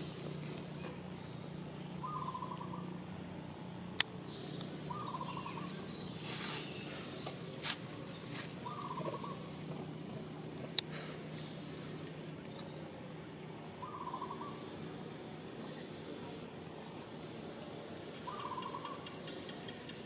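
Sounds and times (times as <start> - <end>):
steady low hum: 0.0 - 20.0
animal trilled call: 18.3 - 19.8.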